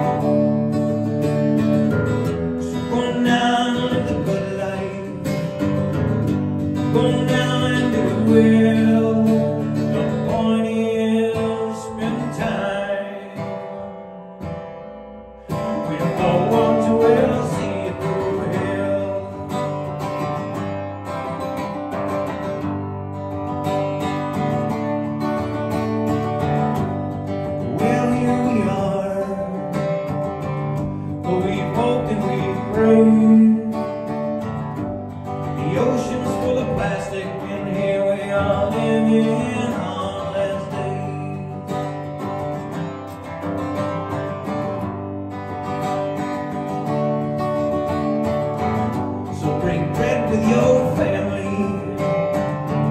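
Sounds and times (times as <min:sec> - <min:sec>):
acoustic guitar strumming: 0:00.0 - 0:52.9.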